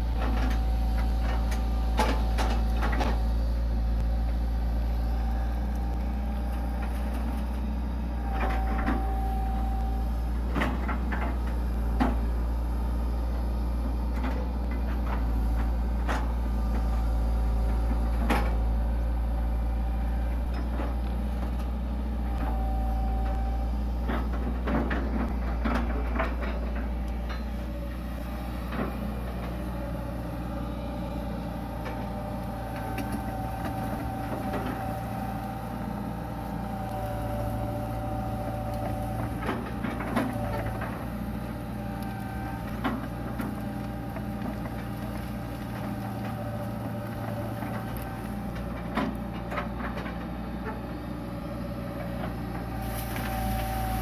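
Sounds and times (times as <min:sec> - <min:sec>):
excavator diesel engine running: 0:00.0 - 0:54.0
hydraulic whine: 0:08.1 - 0:13.1, 0:15.2 - 0:44.4, 0:51.4 - 0:54.0.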